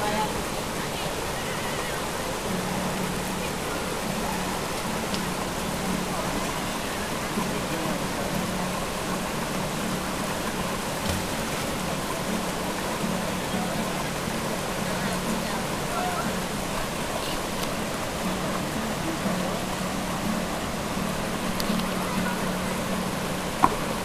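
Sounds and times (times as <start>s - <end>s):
creek water rushing over stones: 0.0s - 24.0s.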